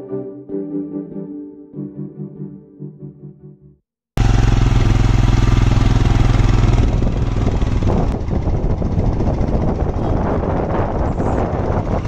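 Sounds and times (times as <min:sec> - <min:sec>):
vehicle engine running: 0:04.2 - 0:12.0.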